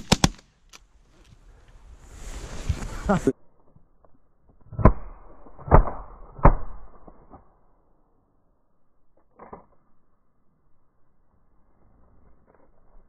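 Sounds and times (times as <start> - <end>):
shotgun shots: 0.0 - 0.4.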